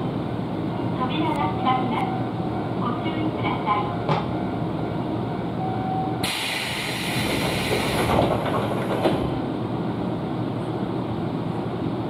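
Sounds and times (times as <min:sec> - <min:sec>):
low rumble of stopped train: 0:00.0 - 0:12.0
train doors knocking shut: 0:04.0 - 0:04.4, 0:06.2 - 0:09.4
brief tone: 0:05.3 - 0:06.2
loud hiss of air: 0:06.2 - 0:08.1.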